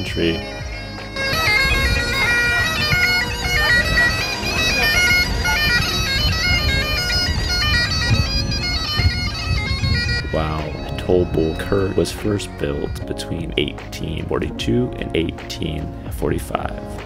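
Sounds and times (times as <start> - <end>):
bagpipes playing a tune: 0.0 - 13.6.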